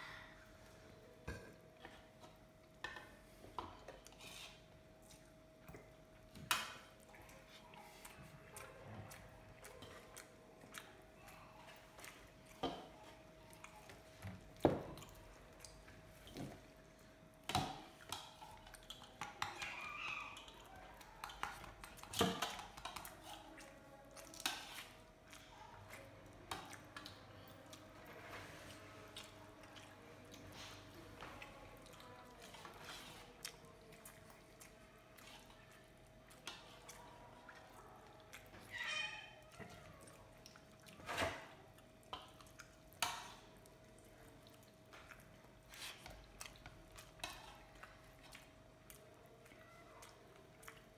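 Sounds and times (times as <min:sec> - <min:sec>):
chewing: 0:00.7 - 0:50.9
fingers mixing rice on plate: 0:17.5 - 0:38.7, 0:41.9 - 0:50.9.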